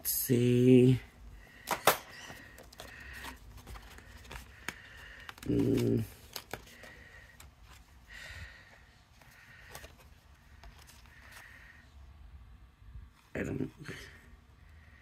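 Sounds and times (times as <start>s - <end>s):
paper handling clicks: 1.6s - 7.8s
person humming: 5.4s - 6.2s.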